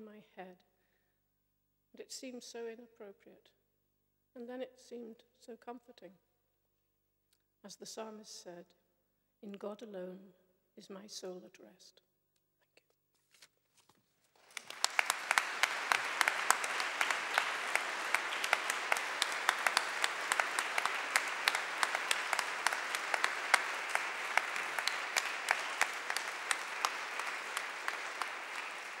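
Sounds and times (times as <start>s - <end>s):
congregation applauding: 14.4s - 29.0s.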